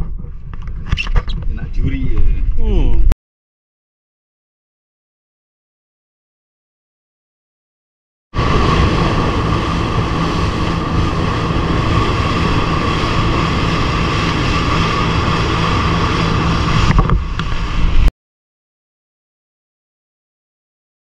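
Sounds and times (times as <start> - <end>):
wind buffeting microphone: 0.0 - 3.1, 8.4 - 18.1
boat engine drone: 8.4 - 18.1
water rushing past hull: 8.4 - 18.1.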